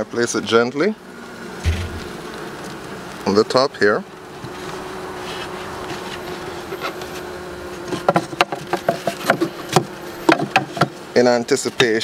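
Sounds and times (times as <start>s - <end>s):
bees buzzing: 0.1s - 11.8s.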